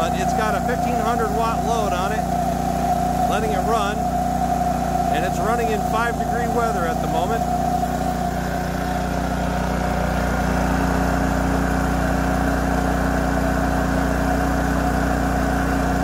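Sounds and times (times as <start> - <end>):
generator engine running: 0.0 - 16.0.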